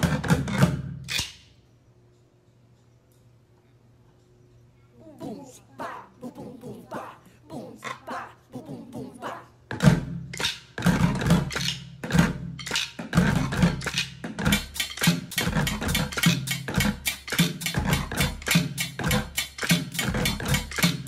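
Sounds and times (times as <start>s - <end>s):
drumsticks on plastic buckets: 9.7s - 16.4s.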